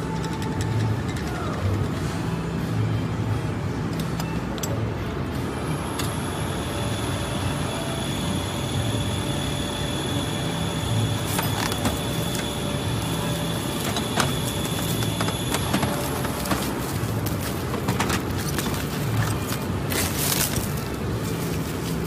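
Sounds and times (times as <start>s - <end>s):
metal parts clicking and knocking: 0.0s - 2.1s, 3.9s - 4.8s, 11.3s - 21.0s
workshop mechanical hum and hiss: 0.0s - 22.0s.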